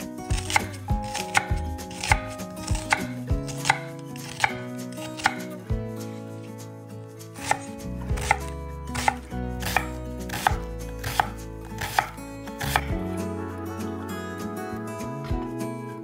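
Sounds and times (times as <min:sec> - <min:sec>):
knife chopping on cutting board: 0:00.3 - 0:05.5, 0:07.4 - 0:13.0.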